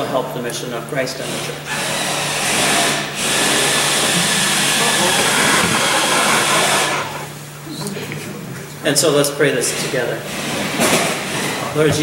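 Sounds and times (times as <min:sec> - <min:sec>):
loud steady hiss: 0:01.3 - 0:07.7.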